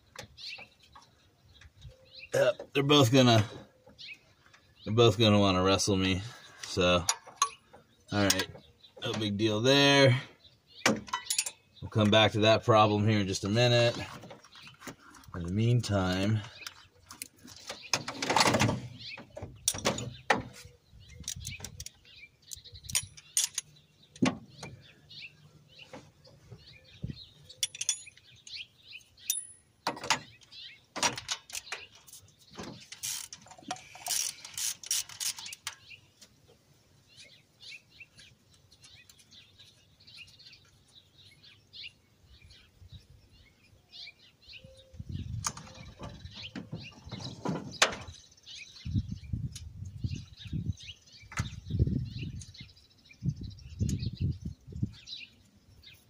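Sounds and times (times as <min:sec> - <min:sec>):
metal tools clinking: 0:07.0 - 0:07.6, 0:11.1 - 0:11.7, 0:22.8 - 0:23.7, 0:27.5 - 0:28.6, 0:29.2 - 0:30.3.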